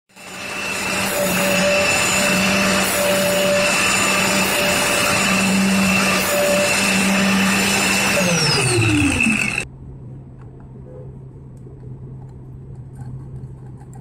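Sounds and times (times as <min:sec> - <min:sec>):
saw teeth grinding on wheel: 0:00.1 - 0:09.6
angle grinder whining: 0:00.1 - 0:09.7.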